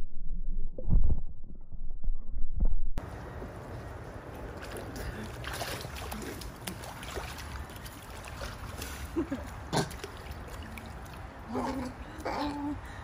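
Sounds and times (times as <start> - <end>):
pool water lapping and splashing: 3.0 - 13.0
sharp water splash: 4.5 - 11.4.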